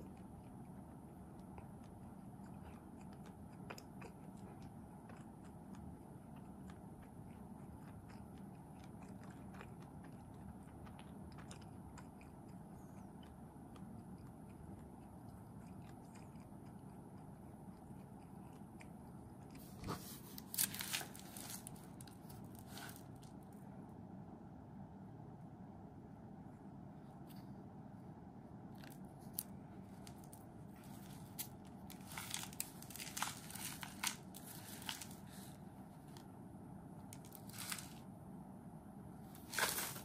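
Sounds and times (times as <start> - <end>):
person chewing bread: 0.0 - 23.7, 28.6 - 36.4.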